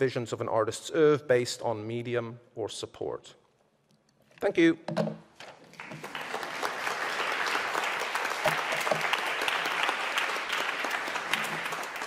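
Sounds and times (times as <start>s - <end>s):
crowd applauding: 5.7s - 12.0s.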